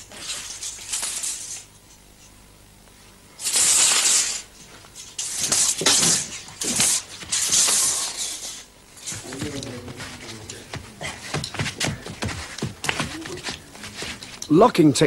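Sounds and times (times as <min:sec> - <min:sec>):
spring sword swishing: 0:03.4 - 0:10.5.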